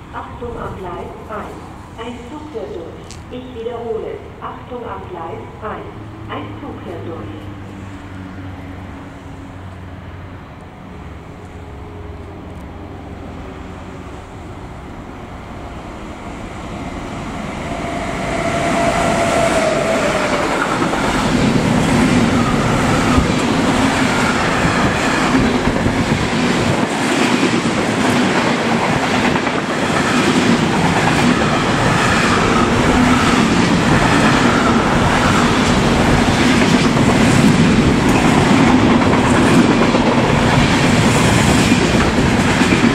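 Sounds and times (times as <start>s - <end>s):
freight train rumbling: 0.0s - 42.9s
clatter of train wheels: 19.0s - 42.9s.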